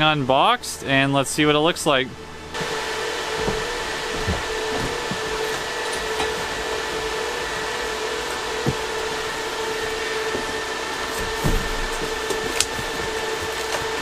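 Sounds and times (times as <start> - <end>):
fans whirring: 0.0 - 14.0
cardboard box knocks: 3.4 - 5.5, 11.2 - 13.2.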